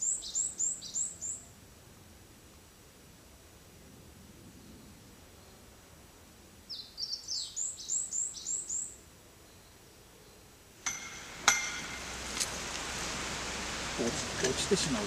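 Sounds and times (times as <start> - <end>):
small bird chirping: 0.0 - 1.4, 6.7 - 9.8
sharp knocks: 10.8 - 12.7.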